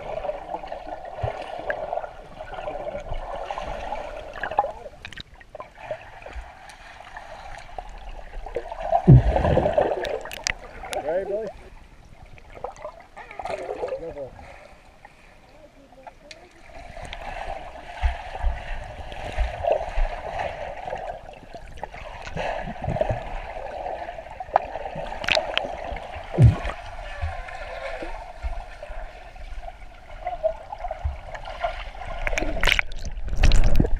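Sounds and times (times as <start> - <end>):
underwater rushing and gurgling: 0.0 - 33.9
dull low thumps: 9.1 - 9.7, 26.3 - 27.4.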